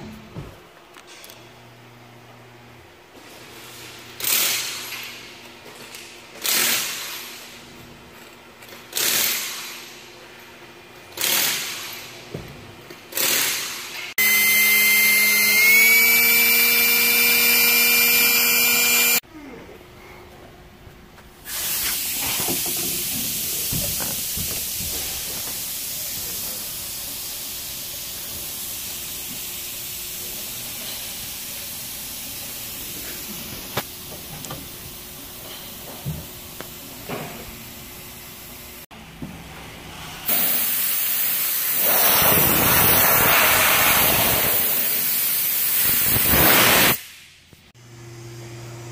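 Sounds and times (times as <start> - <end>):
cordless drill whine: 14.2 - 19.2.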